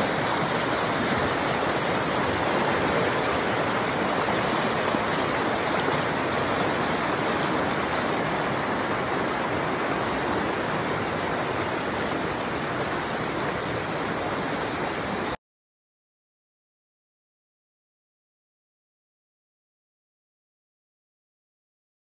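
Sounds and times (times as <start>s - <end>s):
creek rushing over rocks: 0.0s - 15.4s.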